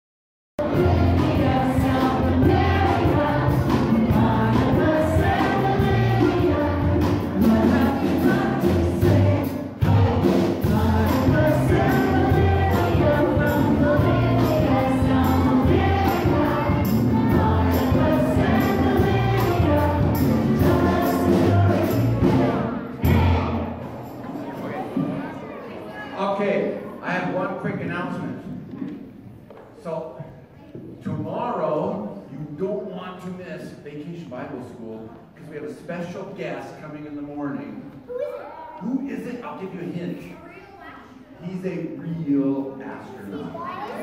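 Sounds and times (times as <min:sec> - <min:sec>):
group of voices singing: 0:00.6 - 0:24.0
live band playing upbeat song: 0:00.6 - 0:24.3.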